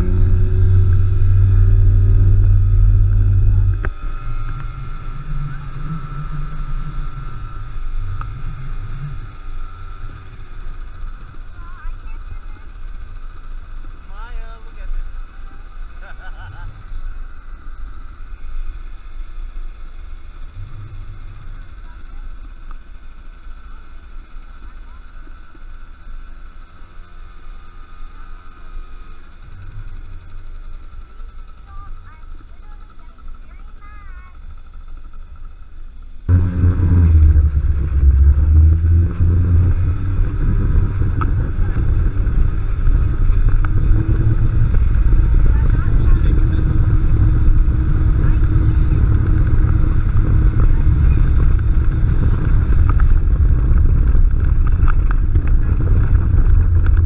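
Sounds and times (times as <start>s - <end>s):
wind on microphone: 0.0s - 12.2s, 36.3s - 57.0s
scooter engine running: 0.0s - 57.0s.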